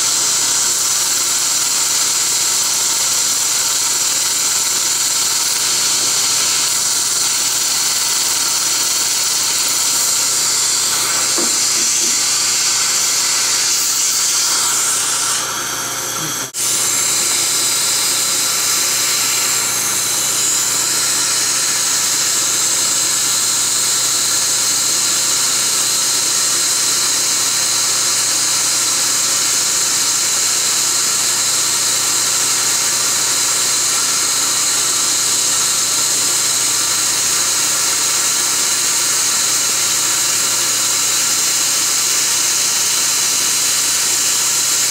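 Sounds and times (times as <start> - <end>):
dental laser spray hissing: 0.1 - 22.7.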